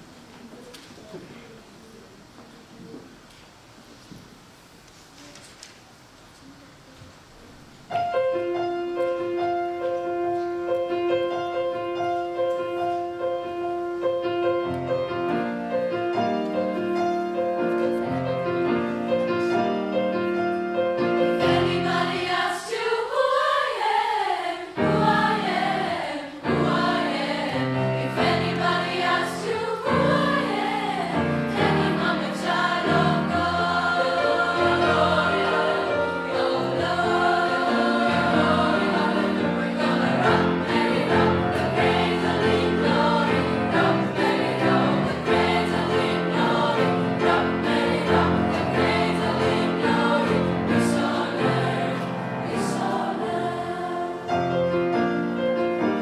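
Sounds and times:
piano accompaniment: 7.9 - 56.0
girls' choir singing: 20.8 - 54.7.

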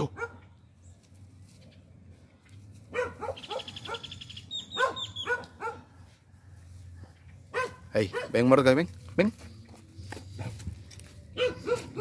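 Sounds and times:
dog barking: 0.0 - 0.4, 2.9 - 6.0, 7.5 - 8.5, 11.4 - 12.0.

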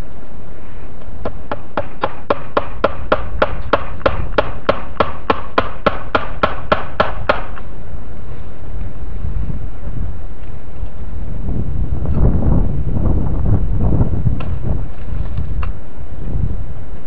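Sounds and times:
wind rumble on microphone: 2.8 - 4.8, 6.7 - 17.0.

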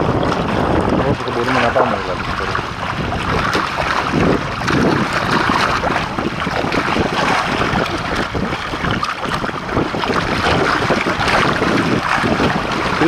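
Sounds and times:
water splashing along a hull: 0.0 - 13.0
wind buffeting microphone: 0.0 - 13.0.

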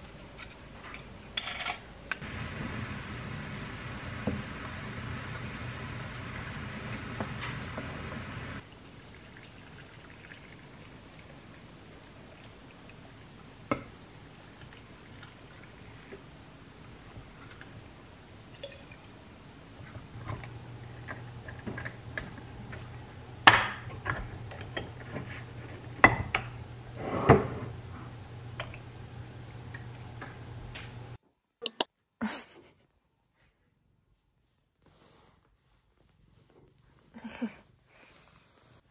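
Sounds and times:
low steady hum: 1.6 - 31.2.

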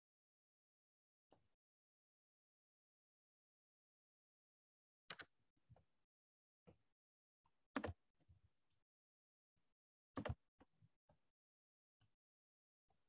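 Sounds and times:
keyboard and mouse clicks: 5.1 - 5.3, 7.8 - 8.0, 10.2 - 10.4.

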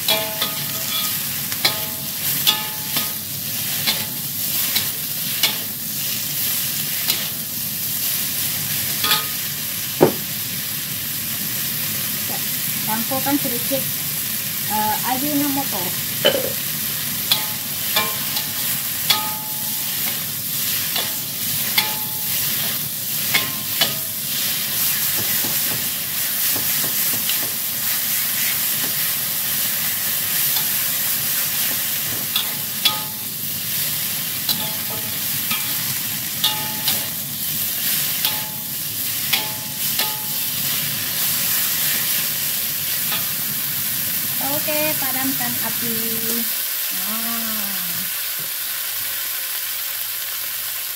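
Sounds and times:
food sizzling in oil: 0.0 - 50.9
metal spatula scraping wok: 0.1 - 5.7, 32.0 - 42.4.

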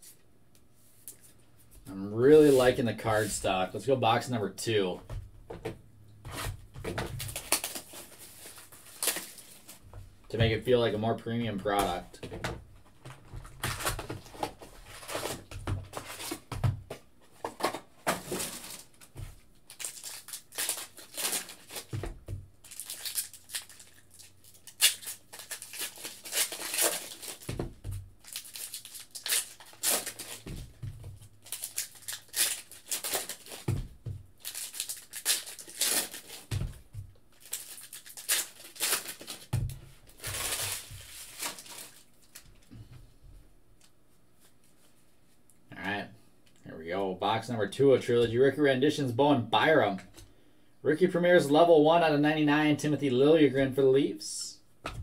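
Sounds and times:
foil packs tearing and crinkling: 6.4 - 9.8, 13.4 - 16.5, 17.5 - 19.1, 19.7 - 22.0, 22.6 - 30.8, 31.4 - 42.5.

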